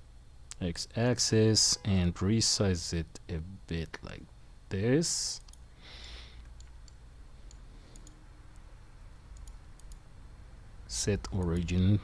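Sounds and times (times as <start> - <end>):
low steady hum: 0.0 - 12.0
computer mouse clicks: 5.4 - 8.7, 9.3 - 10.1.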